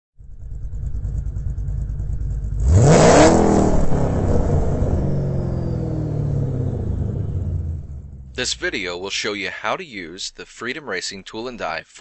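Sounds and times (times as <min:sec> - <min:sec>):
car engine rumbling and revving: 0:00.2 - 0:09.3.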